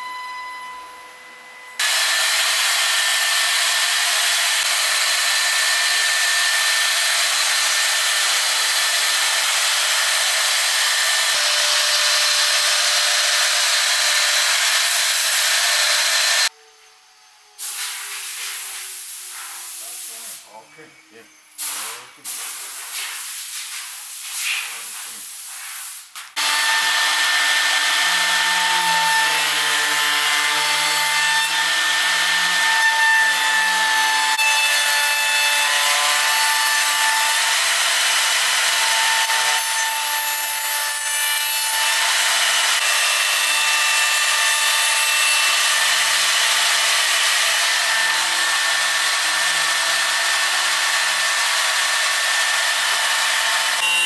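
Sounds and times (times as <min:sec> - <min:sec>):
router spindle whining: 0:00.0 - 0:16.6, 0:26.4 - 0:40.0, 0:41.6 - 0:54.0
rasping wood cutting: 0:01.8 - 0:16.5, 0:26.4 - 0:54.0.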